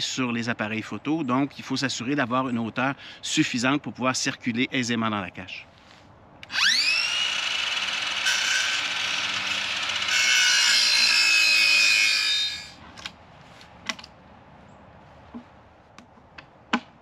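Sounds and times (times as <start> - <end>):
power tool motor whining: 6.4 - 12.8.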